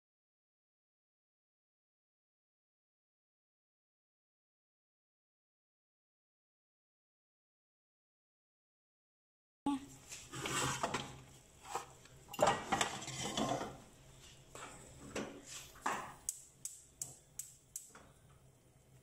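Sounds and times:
spatula scraping metal pan: 10.3 - 13.8.

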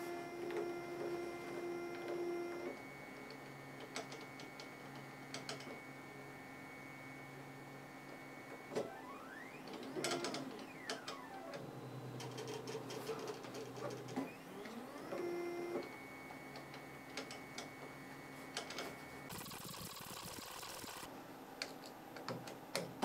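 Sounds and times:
stepper motors whining: 19.3 - 21.1.

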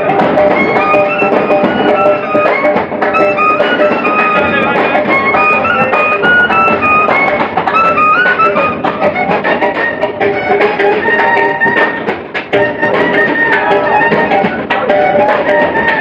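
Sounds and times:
clarinet melody: 0.0 - 16.0
side drum beats: 0.0 - 16.0.

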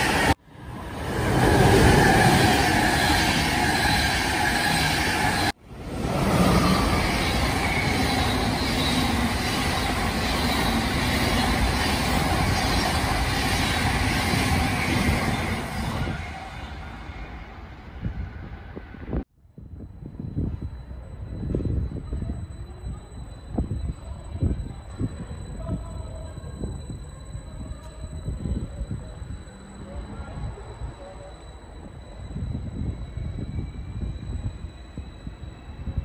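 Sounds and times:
faint high squeal: 6.3 - 36.0.

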